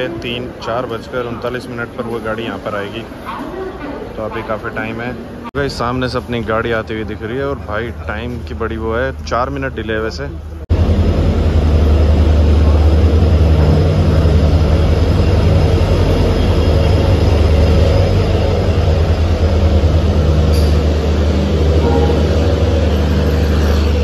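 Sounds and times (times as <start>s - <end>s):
diesel locomotive engine drone: 0.0s - 24.0s
train rumble: 0.0s - 24.0s.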